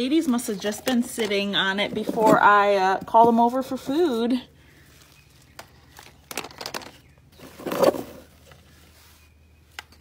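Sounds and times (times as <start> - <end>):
rustling: 4.6 - 10.0.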